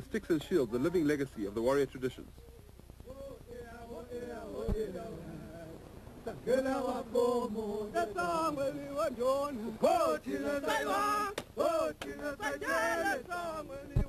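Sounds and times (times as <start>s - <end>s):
men singing a chant: 3.1s - 14.0s.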